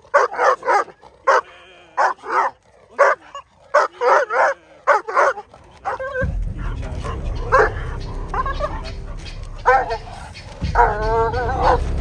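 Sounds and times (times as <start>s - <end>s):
dog barking in high yelps: 0.0s - 6.2s, 9.6s - 11.9s
steady low rumble: 5.5s - 12.0s.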